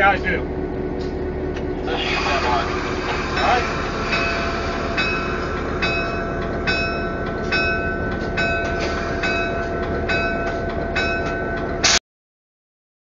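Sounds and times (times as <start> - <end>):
diesel engine rumble: 0.0 - 12.0
locomotive bell ringing: 1.9 - 11.9.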